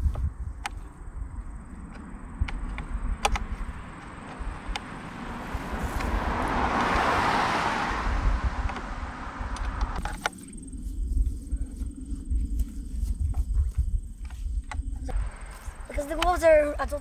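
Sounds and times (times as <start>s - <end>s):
sharp clicks: 1.9s - 5.0s, 9.5s - 10.4s
car passing by: 3.1s - 10.0s.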